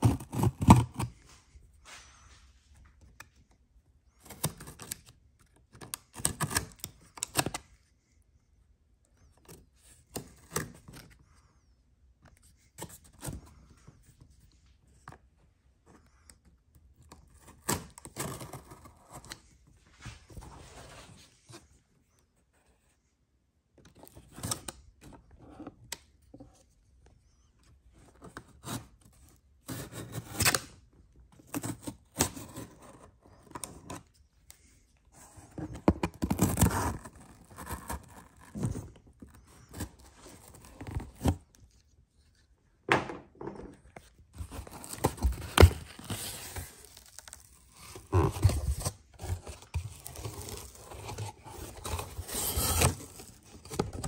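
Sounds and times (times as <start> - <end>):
packaging scraping and rustling: 44.0 - 54.0.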